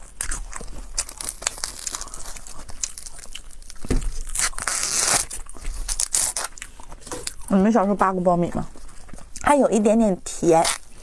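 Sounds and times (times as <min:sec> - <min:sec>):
corn husks tearing: 0:00.0 - 0:07.4.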